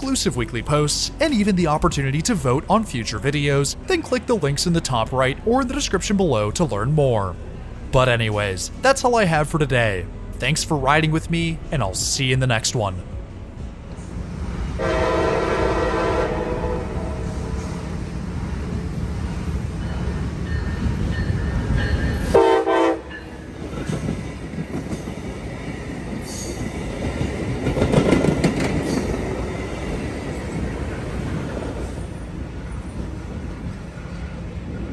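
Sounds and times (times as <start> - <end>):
train rumble and wheel clatter: 0.0 - 34.9
train air horn blast: 14.8 - 17.4, 22.3 - 23.1.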